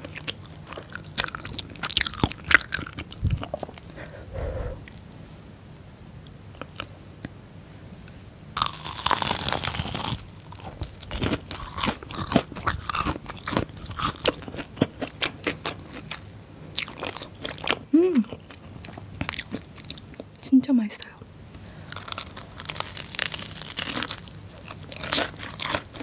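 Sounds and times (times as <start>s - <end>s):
crunch of biting fried food: 0.0s - 5.0s, 8.6s - 16.2s, 21.8s - 26.0s
close chewing with crunches: 0.0s - 5.2s, 6.2s - 7.0s, 8.6s - 20.4s, 21.5s - 26.0s.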